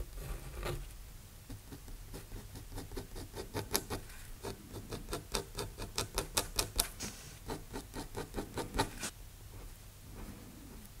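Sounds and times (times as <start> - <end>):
pen nib scratching on paper: 1.6 - 9.1.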